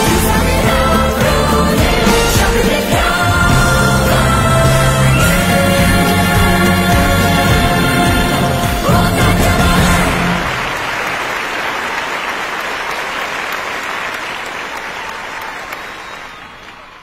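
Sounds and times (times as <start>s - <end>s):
audience applause: 9.1s - 17.0s.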